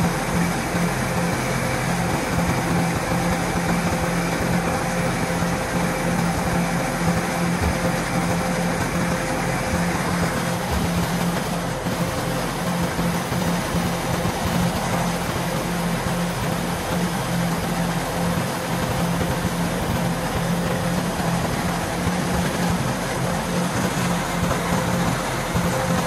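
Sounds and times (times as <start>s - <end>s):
combine harvester running: 0.0s - 26.0s.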